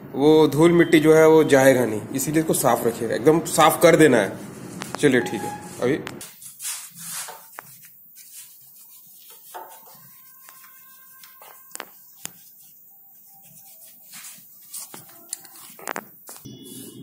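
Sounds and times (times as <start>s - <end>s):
faint rubbing: 3.6s - 16.4s.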